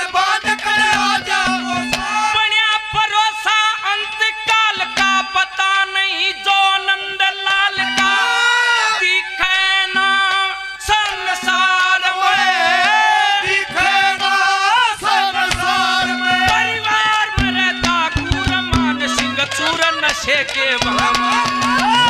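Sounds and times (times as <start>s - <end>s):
held melodic accompaniment: 0.0s - 3.4s, 4.0s - 22.0s
man singing: 0.0s - 22.0s
hand drum strokes: 0.4s - 2.3s, 15.0s - 22.0s.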